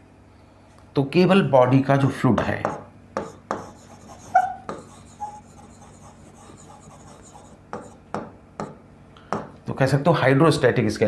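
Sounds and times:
marker scratching on whiteboard: 0:02.6 - 0:08.8
marker squeak: 0:03.6 - 0:08.0.

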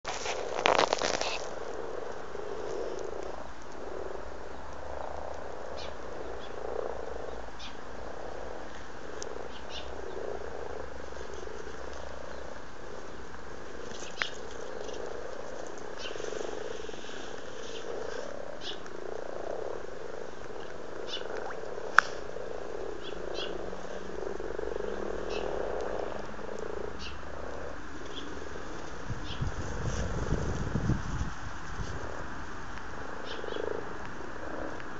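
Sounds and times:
frogs croaking: 0:00.0 - 0:34.9.

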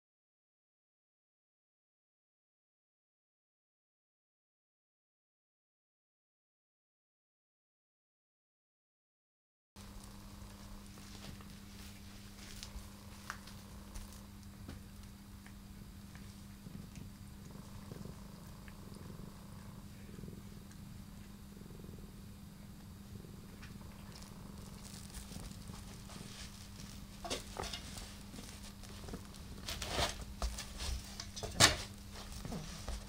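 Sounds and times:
cats scuffling on a mat: 0:09.8 - 0:15.1, 0:24.1 - 0:33.0
cat purring: 0:09.8 - 0:33.0
cat licking fur: 0:09.9 - 0:22.0, 0:23.1 - 0:29.6.

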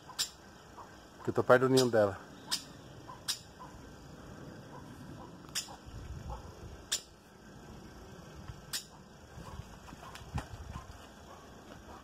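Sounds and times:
bird alarm calls: 0:00.0 - 0:04.0.

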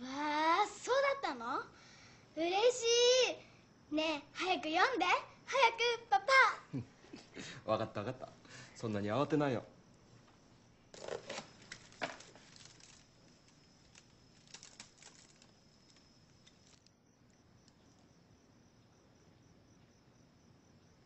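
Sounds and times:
faint high-pitched whine: 0:00.0 - 0:21.0
paper box and bag rustling: 0:11.0 - 0:16.9.

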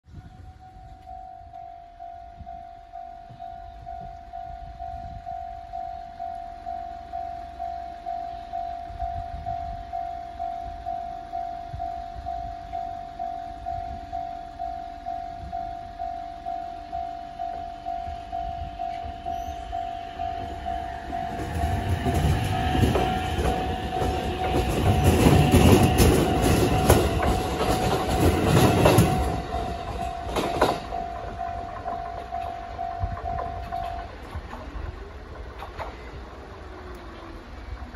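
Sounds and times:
electric train rumble: 0:00.1 - 0:37.9
level crossing bell ringing: 0:00.6 - 0:34.2
train wheels clattering over rail joints: 0:20.4 - 0:37.9.

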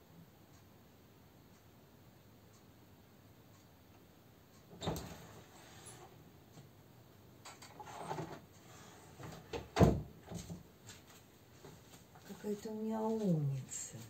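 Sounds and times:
door shutting thump: 0:09.8 - 0:10.5.

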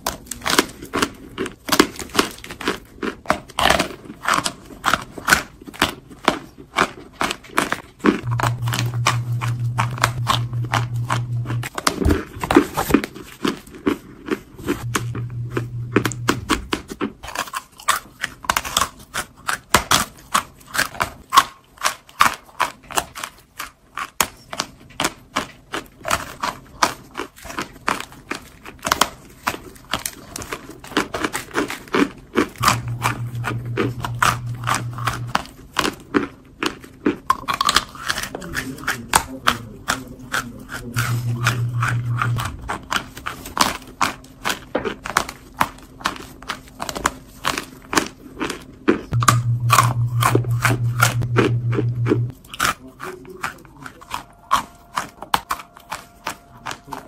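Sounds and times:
squeaky chewing crunches: 0:00.0 - 0:57.0
low buzzing hum: 0:08.2 - 0:12.4, 0:14.8 - 0:16.9, 0:32.6 - 0:35.8, 0:40.8 - 0:43.0, 0:49.1 - 0:52.4.

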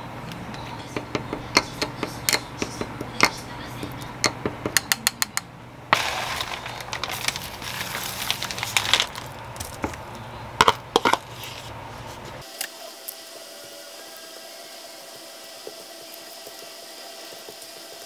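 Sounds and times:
seaweed crinkling in plastic bag: 0:06.0 - 0:09.8.

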